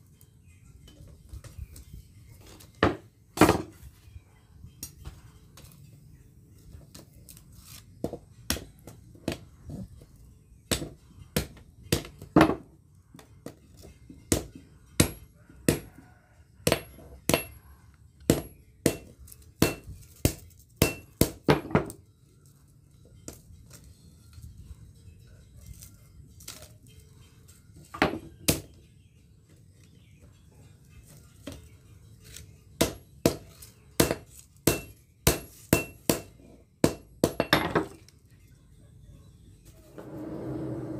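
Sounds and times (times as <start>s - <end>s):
hammer striking metal on anvil: 14.3s - 15.9s, 16.6s - 17.6s, 18.3s - 21.9s, 32.8s - 37.9s.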